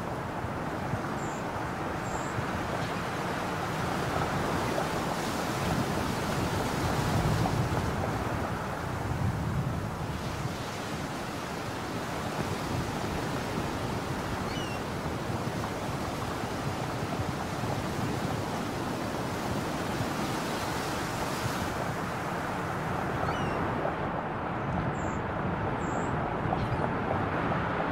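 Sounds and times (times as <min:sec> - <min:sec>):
distant ocean surf: 0:00.0 - 0:27.9
wind: 0:00.0 - 0:27.9.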